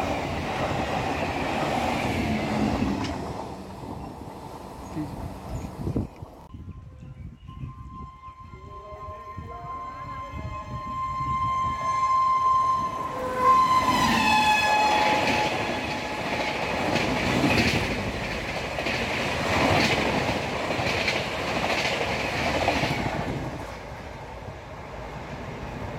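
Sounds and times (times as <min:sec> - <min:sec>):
locomotive horn blast: 0:07.5 - 0:16.4
train wheels clattering: 0:13.8 - 0:23.7.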